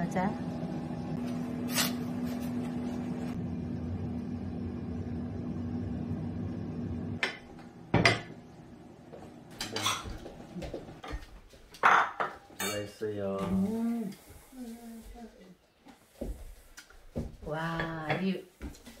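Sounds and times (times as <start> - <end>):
low appliance hum: 0.0 - 19.0
dishware clinking: 9.6 - 10.2, 11.8 - 13.6.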